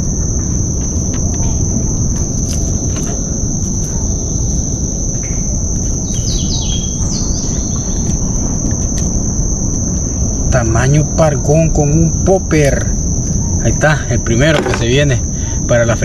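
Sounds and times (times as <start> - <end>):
high-pitched insect drone: 0.0 - 16.0
bird chirps: 4.0 - 8.5.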